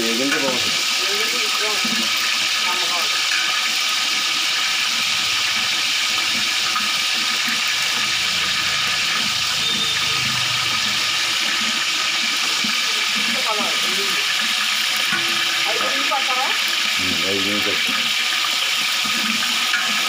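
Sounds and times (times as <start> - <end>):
onions sizzling in hot oil: 0.0 - 20.0
ladle stirring in pot: 10.8 - 16.0.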